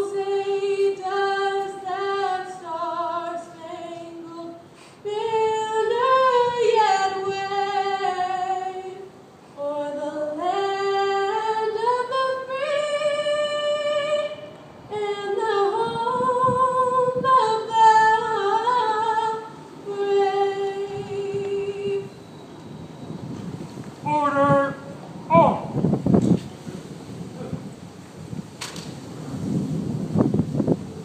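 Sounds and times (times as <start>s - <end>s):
woman singing through speaker: 0.0s - 22.2s.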